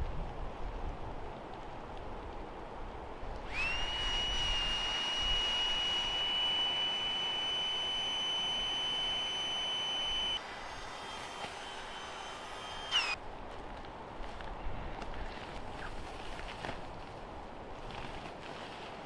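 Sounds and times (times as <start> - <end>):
air pump whining: 3.4 - 13.2.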